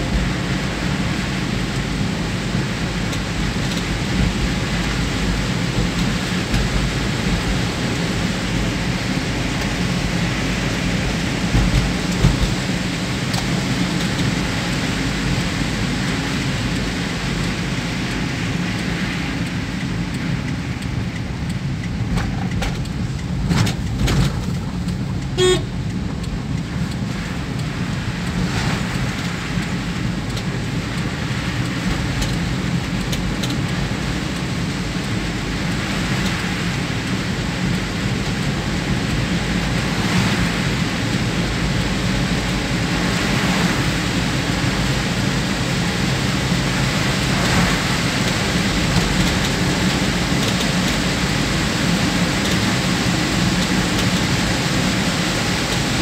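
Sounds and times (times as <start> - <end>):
car driving on wet road: 0.0 - 56.0
rain beating on car: 0.0 - 56.0
car horn toot: 25.4 - 25.8.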